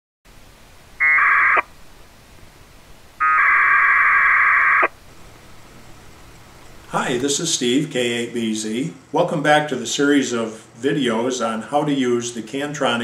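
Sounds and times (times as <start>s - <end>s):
packet radio data tones: 1.0s - 1.7s, 3.2s - 5.0s.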